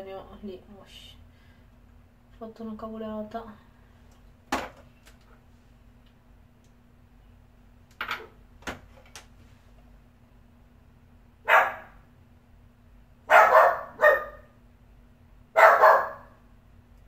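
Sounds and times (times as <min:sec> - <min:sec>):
dog barking: 0:11.4 - 0:12.0, 0:13.3 - 0:14.5, 0:15.6 - 0:16.4.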